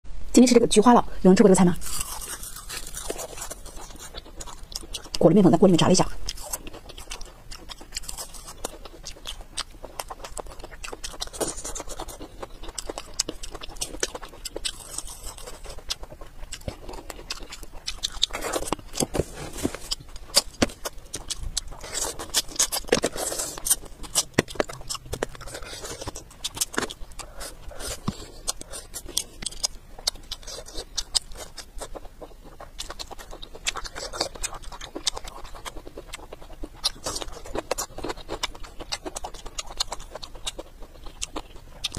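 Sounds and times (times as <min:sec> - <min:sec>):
chewing and crunching: 0:01.8 - 0:41.9.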